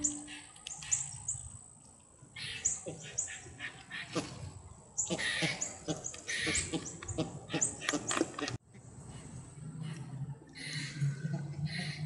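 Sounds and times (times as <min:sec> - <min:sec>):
birds grunting calls: 0:02.4 - 0:08.6, 0:09.7 - 0:12.0.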